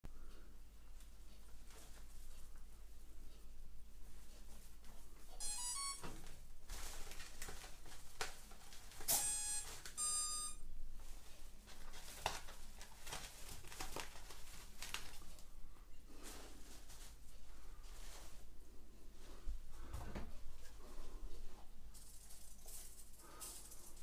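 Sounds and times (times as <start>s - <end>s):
electronic beeps: 5.4s - 6.0s, 9.1s - 10.6s.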